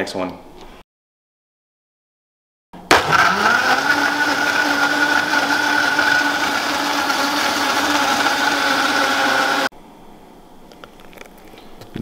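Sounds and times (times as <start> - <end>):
blender motor running: 2.9 - 9.7.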